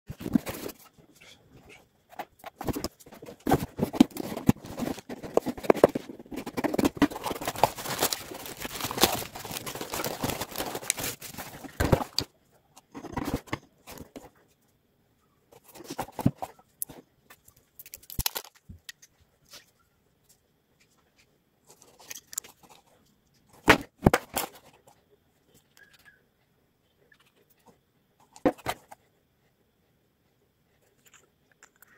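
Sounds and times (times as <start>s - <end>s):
cardboard tearing and rustling: 2.5s - 12.3s.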